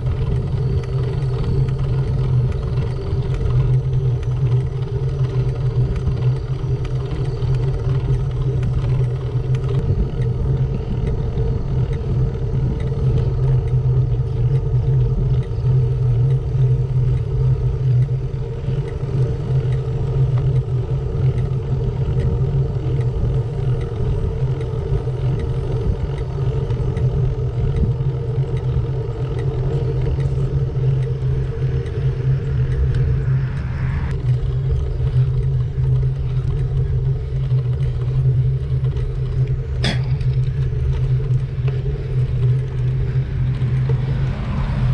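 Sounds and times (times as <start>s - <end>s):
tyres rolling on asphalt: 0.0s - 33.3s, 34.3s - 44.9s
wind rushing over microphone: 20.9s - 37.4s, 40.9s - 44.9s.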